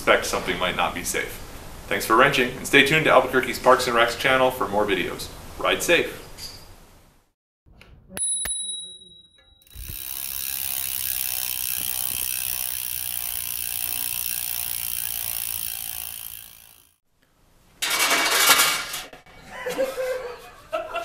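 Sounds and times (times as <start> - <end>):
bicycle freewheel ratcheting: 9.6 - 17.0.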